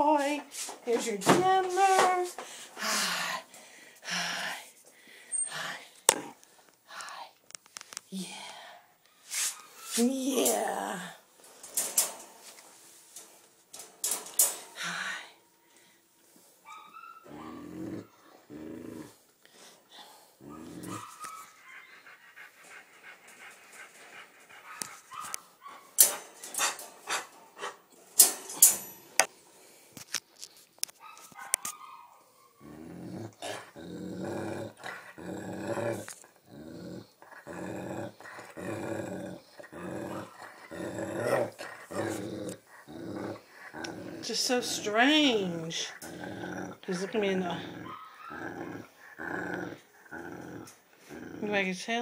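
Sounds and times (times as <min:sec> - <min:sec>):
dog growling and grumbling: 0:17.2 - 0:19.3, 0:20.0 - 0:21.2, 0:32.6 - 0:51.7.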